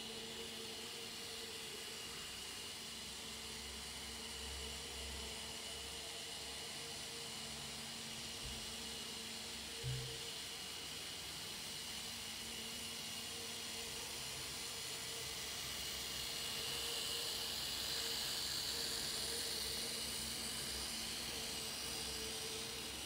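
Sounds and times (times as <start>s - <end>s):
model train motors whirring: 0.0s - 23.0s
wheels hissing on rails: 13.8s - 23.0s.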